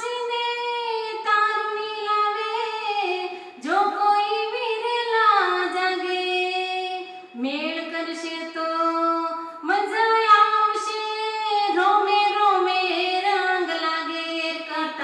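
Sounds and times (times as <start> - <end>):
woman singing devotional song: 0.0 - 15.0
singer breathing: 3.2 - 3.6.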